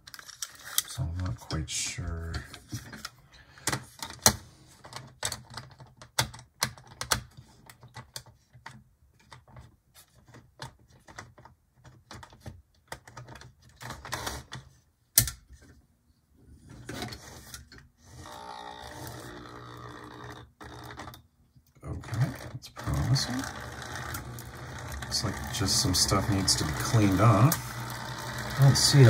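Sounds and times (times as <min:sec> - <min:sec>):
toy train motor whirring: 0:18.0 - 0:21.2, 0:22.1 - 0:29.0.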